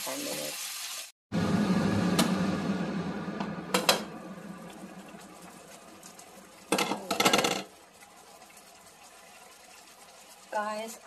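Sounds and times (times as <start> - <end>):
liquid sizzling in hot pan: 0.0 - 1.2, 3.7 - 11.0.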